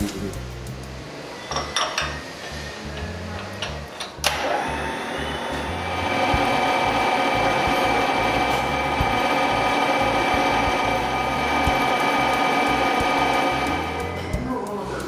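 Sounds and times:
milling machine cutting whine: 4.2 - 14.4.

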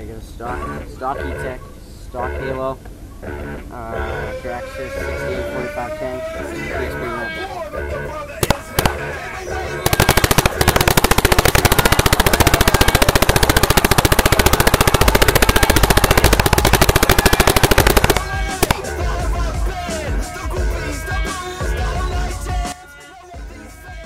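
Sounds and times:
paintball marker rapid firing: 8.4 - 9.1, 9.8 - 19.0.

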